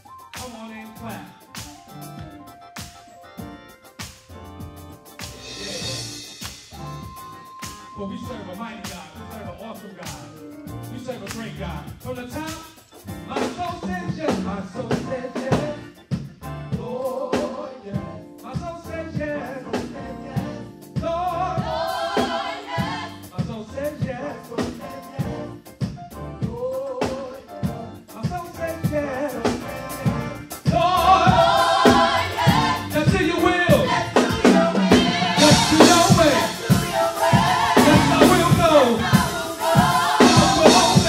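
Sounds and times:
drum kit beat: 0.0 - 41.0
keyboard: 0.0 - 41.0
gospel group singing: 5.0 - 10.0, 13.3 - 25.8, 26.4 - 41.0.

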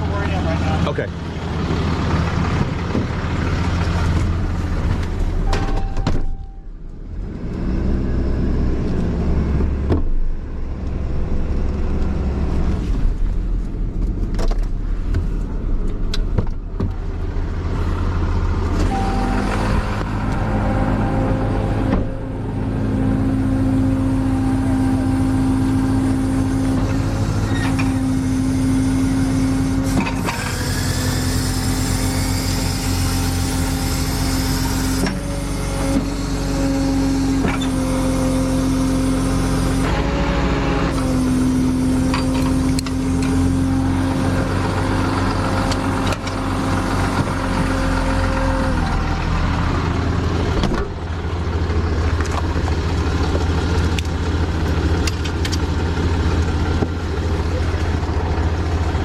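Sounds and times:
truck engine running: 0.0 - 59.0
higher-pitched drone: 18.8 - 26.4.

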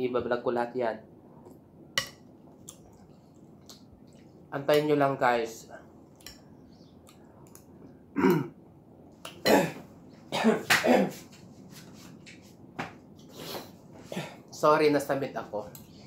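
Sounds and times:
man clearing his throat: 8.2 - 8.6, 9.4 - 11.2, 14.1 - 14.4
man coughing hard: 8.2 - 8.6, 9.4 - 11.2.

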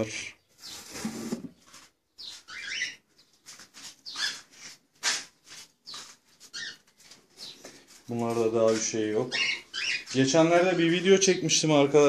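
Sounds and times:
cockatiels chirping: 2.2 - 3.0, 4.0 - 4.5, 5.9 - 6.8, 9.3 - 10.2.

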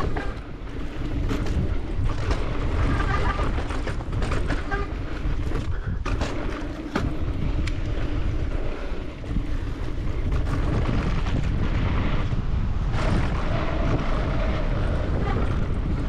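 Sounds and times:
bike rattling clacks: 0.0 - 16.0
wind on microphone: 0.0 - 16.0.

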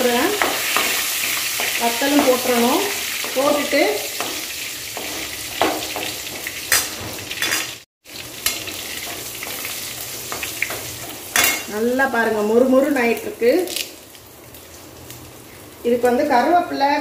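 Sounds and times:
garlic and chillies sizzling in oil: 0.0 - 17.0
ladle scraping and clinking on pan: 5.0 - 7.8.

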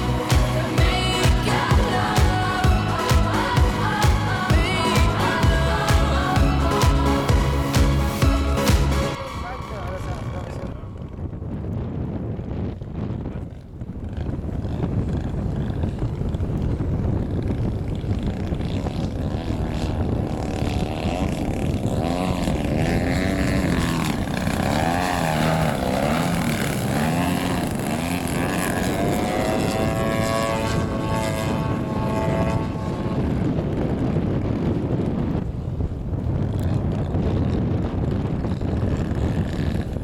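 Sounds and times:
wind rumble on microphone: 0.0 - 40.0
model airplane engine: 9.1 - 40.0.

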